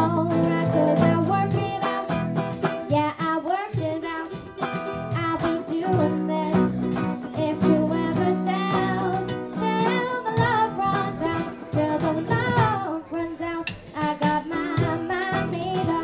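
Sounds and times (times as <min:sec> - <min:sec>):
bass guitar: 0:00.0 - 0:12.9, 0:13.6 - 0:16.0
drums keeping a steady beat: 0:00.0 - 0:16.0
girl singing: 0:00.0 - 0:16.0
strummed acoustic guitar: 0:00.0 - 0:16.0
ukulele: 0:00.0 - 0:16.0.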